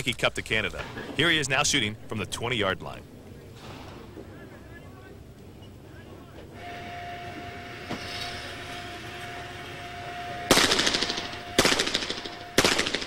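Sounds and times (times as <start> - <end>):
steady mechanical whine: 0.0 - 13.0
pistol shots: 10.5 - 13.0.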